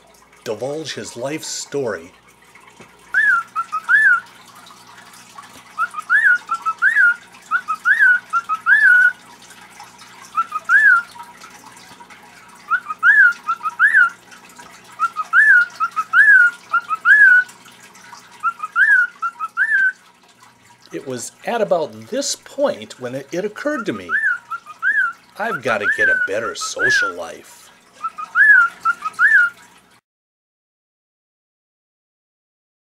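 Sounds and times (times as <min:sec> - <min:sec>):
cockatiel whistling: 0:03.1 - 0:04.2, 0:05.8 - 0:09.2, 0:10.4 - 0:11.1, 0:12.7 - 0:14.2, 0:15.0 - 0:17.5, 0:18.4 - 0:20.0, 0:24.0 - 0:25.2, 0:25.8 - 0:27.1, 0:28.0 - 0:29.5.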